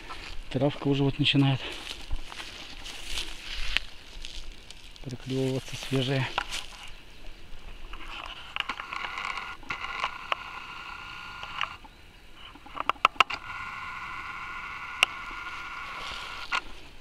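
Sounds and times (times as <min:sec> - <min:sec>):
footsteps crunching through dry grass: 0:00.0 - 0:09.2, 0:15.1 - 0:17.0
steady high-pitched hum: 0:00.0 - 0:17.0
twigs snapping: 0:01.8 - 0:06.9.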